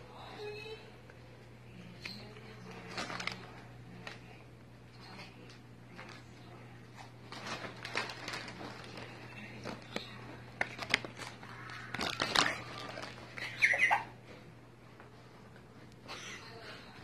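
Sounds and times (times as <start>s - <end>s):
snack bag crinkling: 2.8s - 4.2s, 7.3s - 13.5s.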